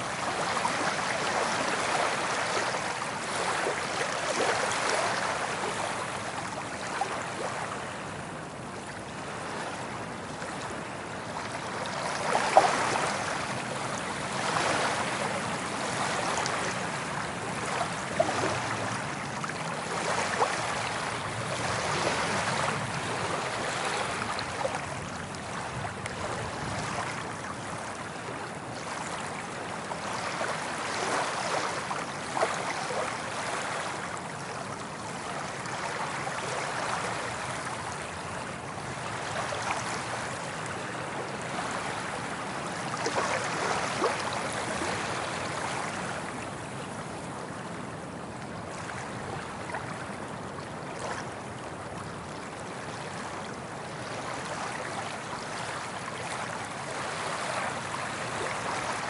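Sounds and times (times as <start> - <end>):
ocean waves breaking on beach: 0.0 - 59.0.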